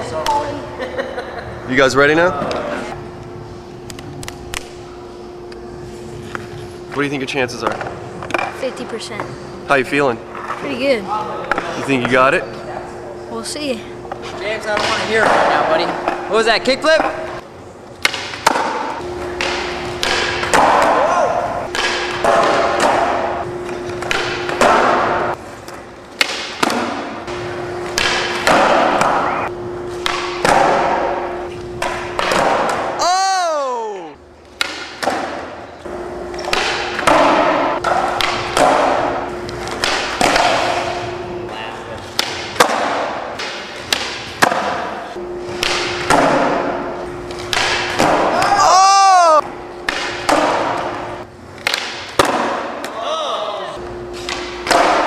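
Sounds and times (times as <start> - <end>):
skateboard landing: 27.9 - 29.4, 30.0 - 33.0, 39.7 - 40.8, 51.6 - 52.9.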